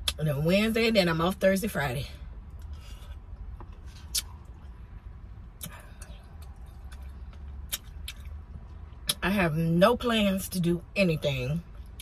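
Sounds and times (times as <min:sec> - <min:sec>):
wet mouth smacks and clicks: 0:04.0 - 0:04.6, 0:06.4 - 0:08.4.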